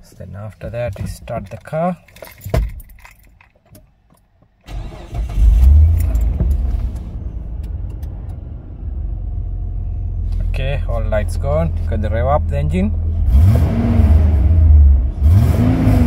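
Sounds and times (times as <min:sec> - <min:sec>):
keys rattling: 0:01.4 - 0:03.8
car engine starting and idling: 0:04.6 - 0:16.0.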